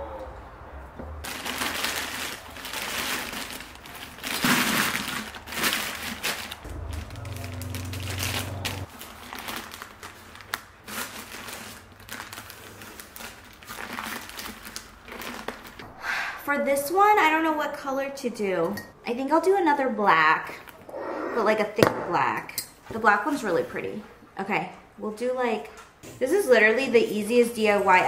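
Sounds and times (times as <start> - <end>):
wrapping material crinkling: 1.2 - 15.8.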